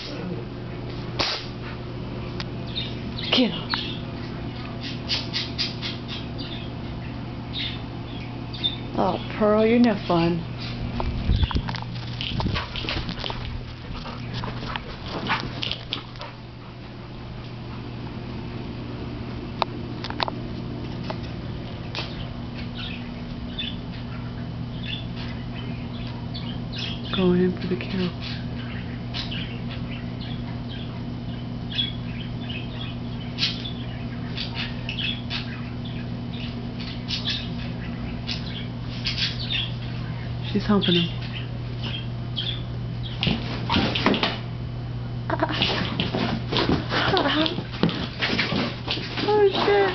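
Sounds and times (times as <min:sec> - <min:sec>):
steady low hum: 0:00.0 - 0:49.9
dogs scuffling: 0:09.6 - 0:17.8, 0:43.0 - 0:44.5, 0:45.5 - 0:49.9.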